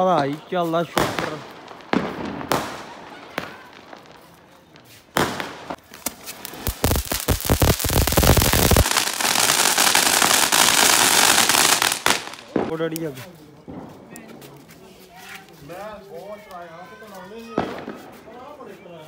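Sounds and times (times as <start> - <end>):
fireworks bangs: 0.0 - 14.5, 17.5 - 18.6
fireworks crackling and hissing: 0.0 - 19.0
loud firework blast: 5.1 - 12.9.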